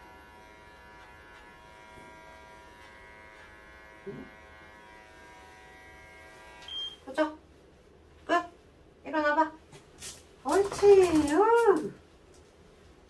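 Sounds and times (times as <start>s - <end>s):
electric clippers buzzing: 0.0s - 6.9s.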